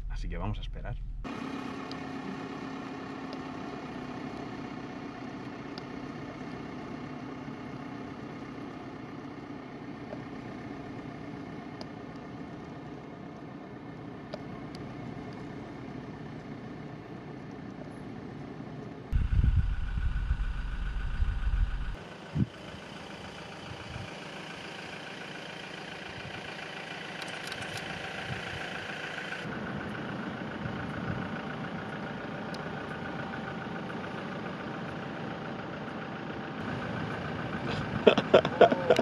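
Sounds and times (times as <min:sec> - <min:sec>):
car engines idling: 0:00.0 - 0:39.0
loud low rumble: 0:19.1 - 0:22.5.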